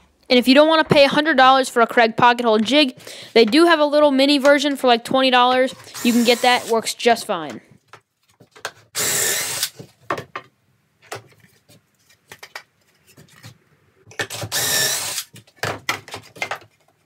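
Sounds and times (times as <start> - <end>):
cordless drill boring wood: 5.8 - 6.8, 9.0 - 9.8, 14.3 - 15.3.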